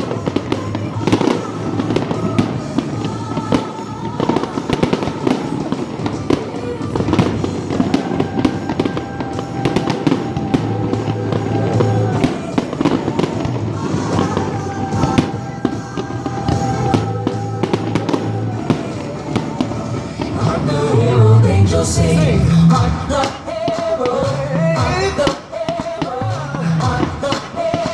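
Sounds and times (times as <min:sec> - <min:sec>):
fireworks bursting and crackling: 0:00.0 - 0:27.9
music: 0:00.0 - 0:27.9.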